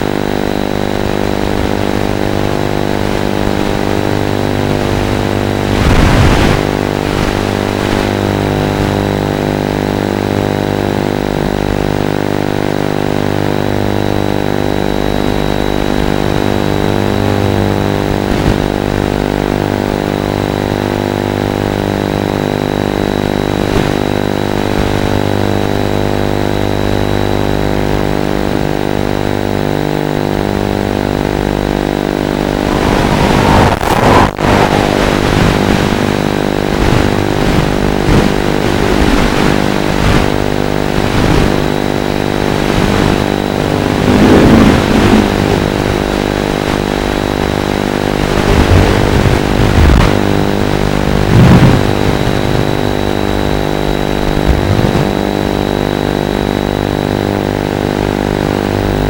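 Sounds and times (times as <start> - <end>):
loud buzz with harmonics: 0.0 - 59.0
burst of noise: 32.1 - 37.5, 41.0 - 55.3.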